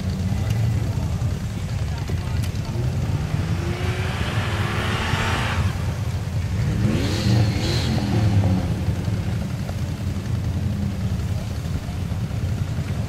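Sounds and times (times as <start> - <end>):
car engine revving under load: 2.1 - 9.1.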